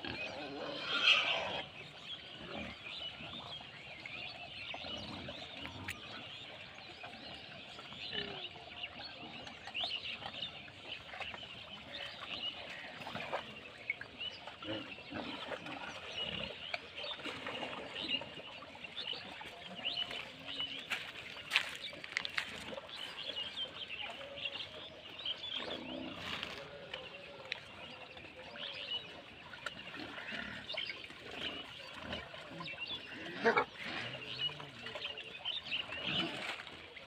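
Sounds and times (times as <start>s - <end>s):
pigs grunting and squealing: 0.0s - 3.4s, 4.7s - 6.1s, 7.4s - 9.7s, 14.5s - 16.7s, 28.6s - 35.1s, 35.7s - 36.8s.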